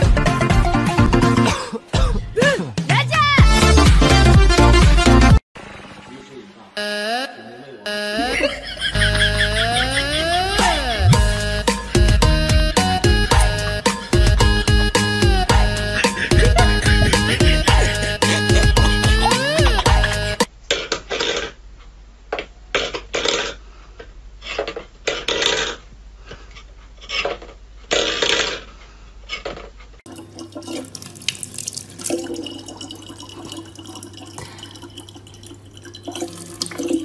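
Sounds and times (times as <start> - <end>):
running tap water: 30.1 - 37.0
water splashing: 30.1 - 37.0.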